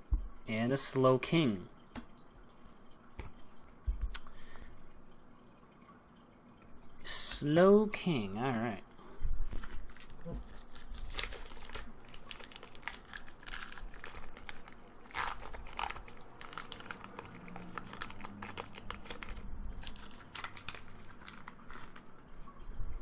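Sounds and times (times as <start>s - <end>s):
foil wrapper tearing and crinkling: 9.6s - 22.1s.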